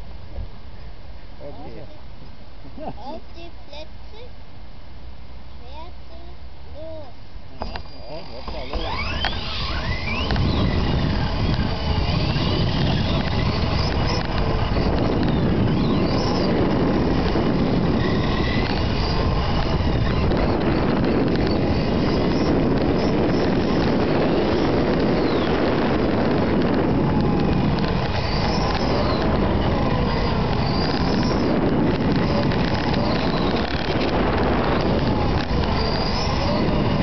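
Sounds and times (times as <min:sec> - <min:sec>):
electric motor whine: 0:07.6 - 0:37.0
model car wheels rumbling: 0:07.6 - 0:37.0.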